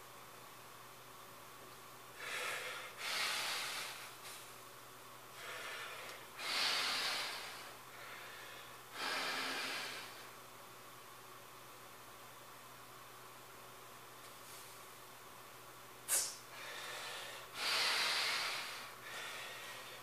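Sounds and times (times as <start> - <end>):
man breathing hard: 2.1 - 4.4, 5.3 - 10.4, 16.1 - 20.0.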